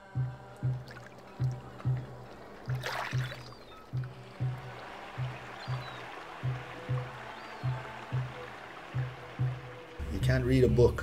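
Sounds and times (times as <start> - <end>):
low drum beaten in pairs: 0.0 - 11.0.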